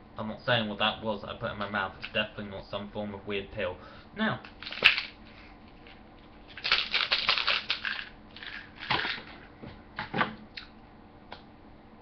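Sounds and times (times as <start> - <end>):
crunching handling noise: 4.4 - 10.7.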